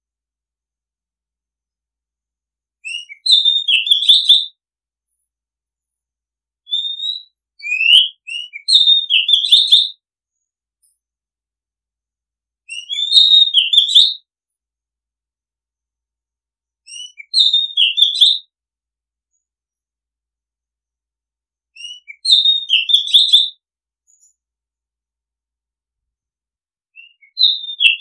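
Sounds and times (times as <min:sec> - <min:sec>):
bird singing whistles and trills: 0:02.8 - 0:04.6, 0:06.6 - 0:10.0, 0:12.7 - 0:14.3, 0:16.8 - 0:18.5, 0:21.8 - 0:23.6, 0:26.9 - 0:28.0.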